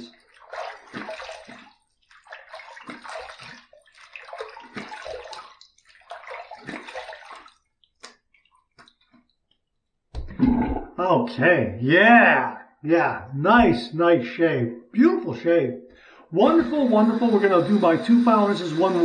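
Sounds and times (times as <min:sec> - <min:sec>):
water splashing on face: 0:00.0 - 0:09.2
water dripping: 0:00.0 - 0:11.0.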